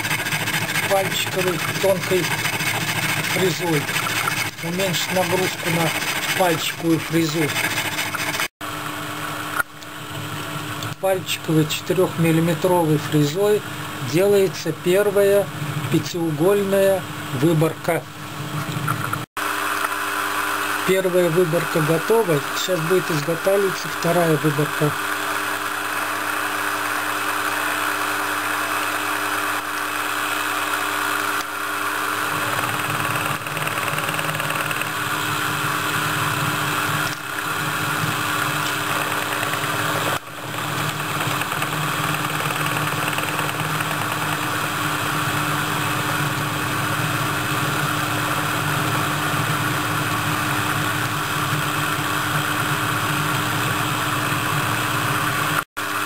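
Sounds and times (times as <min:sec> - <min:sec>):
milling machine cutting metal: 0:00.0 - 0:08.5.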